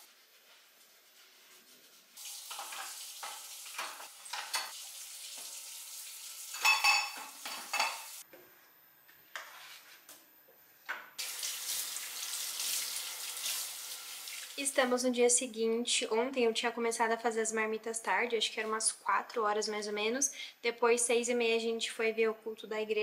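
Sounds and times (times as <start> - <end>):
food sizzling in a pan: 2.1 - 8.2, 11.2 - 14.7.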